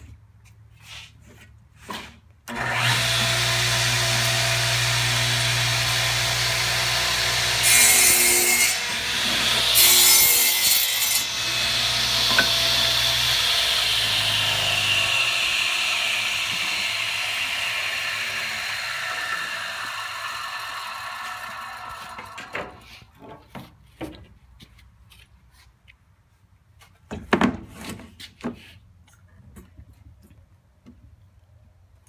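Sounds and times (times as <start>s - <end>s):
saw cutting wooden board: 1.8s - 23.0s.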